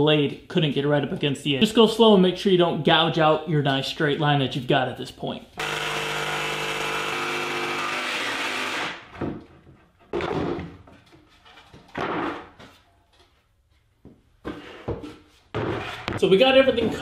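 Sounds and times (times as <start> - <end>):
jigsaw cutting plywood: 5.6 - 9.1
wood pieces knocking and scraping: 9.1 - 12.8.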